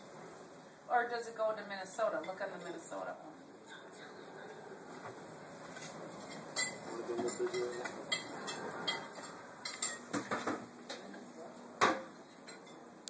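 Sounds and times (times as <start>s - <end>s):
dishes and cutlery clinking: 5.7s - 11.1s, 11.8s - 12.9s.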